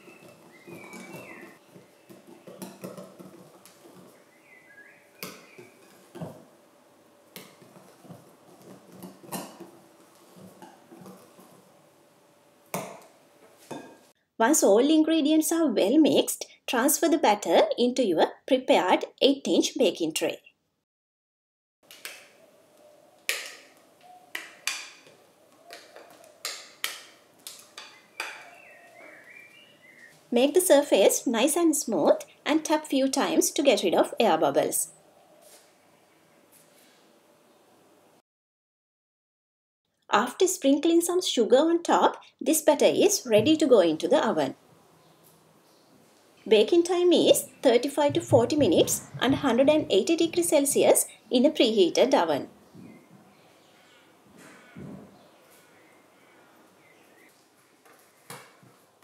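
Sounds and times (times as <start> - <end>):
batter stirring: 0.0 - 6.4, 7.3 - 11.8.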